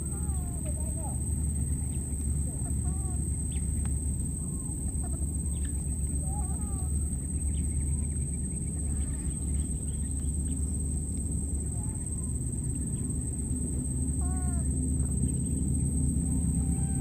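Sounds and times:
high-pitched whine: 0:00.0 - 0:17.0
steady low rumble: 0:00.0 - 0:17.0
faint chirping animal calls: 0:04.4 - 0:10.7, 0:13.9 - 0:17.0.

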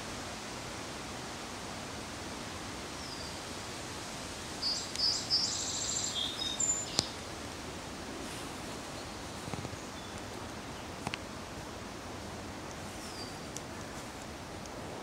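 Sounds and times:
steady background hiss: 0:00.0 - 0:15.0
songbird singing: 0:03.0 - 0:03.5, 0:04.5 - 0:07.3, 0:08.6 - 0:11.2, 0:13.0 - 0:13.6.

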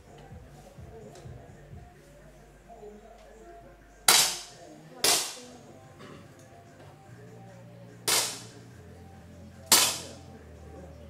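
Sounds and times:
air pistol shots: 0:04.1 - 0:05.5, 0:08.1 - 0:08.6, 0:09.7 - 0:10.2.

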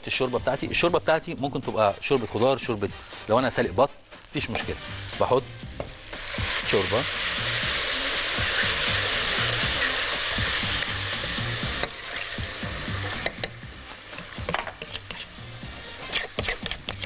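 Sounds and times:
liquid sizzling in a hot pot: 0:04.6 - 0:17.0
wooden spoon stirring: 0:16.0 - 0:17.0.

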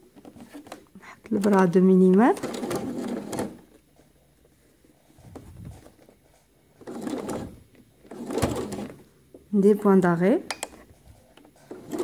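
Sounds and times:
sewing machine stitching: 0:01.4 - 0:03.7, 0:06.8 - 0:09.0, 0:11.6 - 0:12.0.

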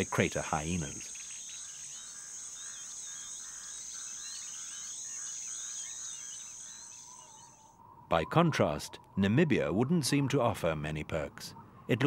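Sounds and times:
insects shrilling drone: 0:00.0 - 0:07.9
low pulsing insect chirp: 0:00.0 - 0:08.1
small birds twittering: 0:00.0 - 0:10.2.

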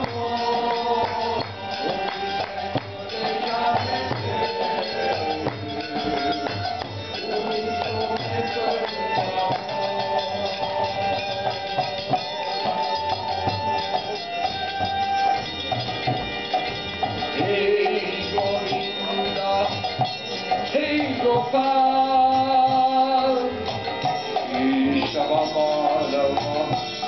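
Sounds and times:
man singing: 0:00.0 - 0:13.9, 0:17.2 - 0:27.0
barrel drum: 0:00.0 - 0:27.0
flute: 0:00.0 - 0:27.0.

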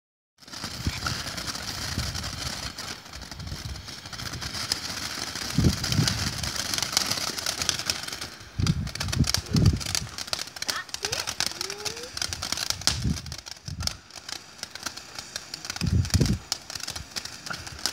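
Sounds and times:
firework hissing and crackling: 0:00.4 - 0:17.9.

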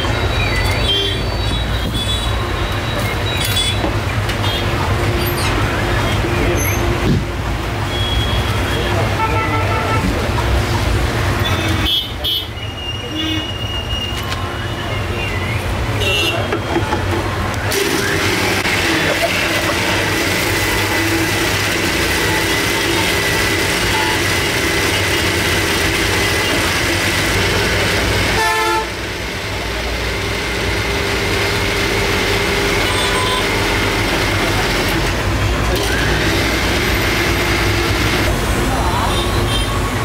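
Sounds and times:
mixer grinder motor whine: 0:17.6 - 0:38.3.

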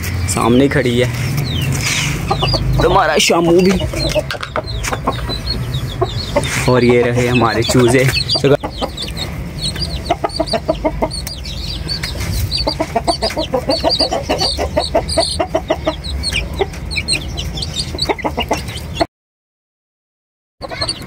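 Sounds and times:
chicks peeping: 0:00.0 - 0:19.1, 0:20.6 - 0:21.0
chicken clucking: 0:00.4 - 0:19.1, 0:20.6 - 0:21.0.

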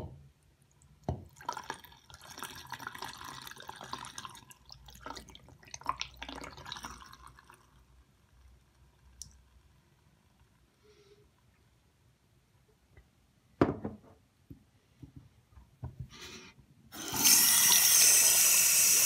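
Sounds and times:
water pouring into a sink: 0:01.2 - 0:07.9, 0:17.0 - 0:19.0.

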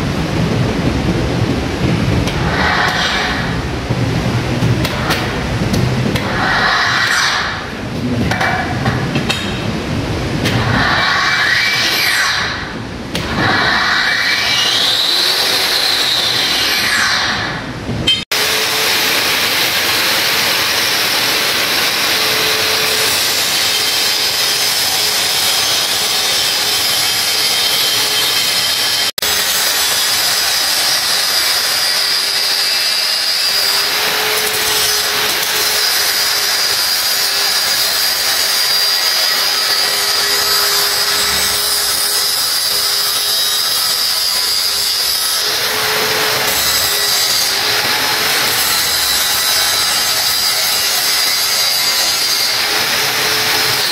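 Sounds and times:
angle grinder cutting steel: 0:13.2 - 0:17.4, 0:18.1 - 0:53.9.

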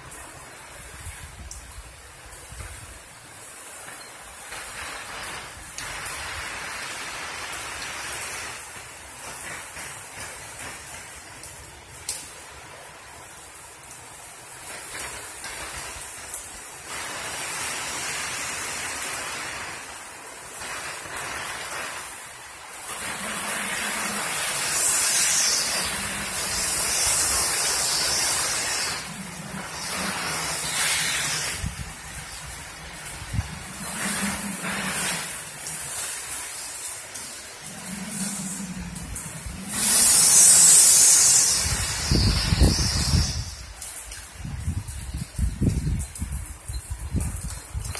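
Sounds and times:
heavy rain on screen enclosure: 0:00.0 - 0:47.9
storm wind gusting: 0:17.0 - 0:47.9.

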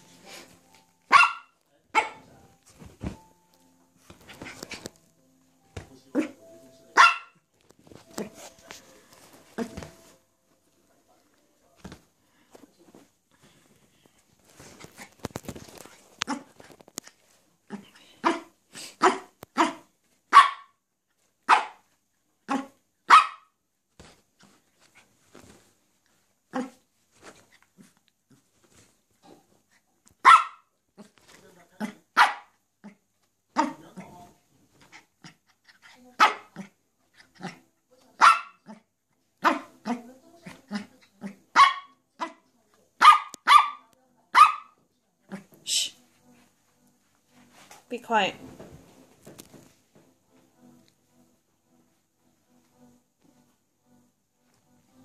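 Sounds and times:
dog barking: 0:01.1 - 0:02.2, 0:07.0 - 0:07.4, 0:18.2 - 0:20.8, 0:21.5 - 0:21.8, 0:22.5 - 0:23.6, 0:30.2 - 0:30.7, 0:32.2 - 0:32.6, 0:36.2 - 0:36.6, 0:38.2 - 0:38.8, 0:39.4 - 0:39.7, 0:41.5 - 0:42.4, 0:43.0 - 0:44.8
rustling and clicking: 0:14.2 - 0:17.5.

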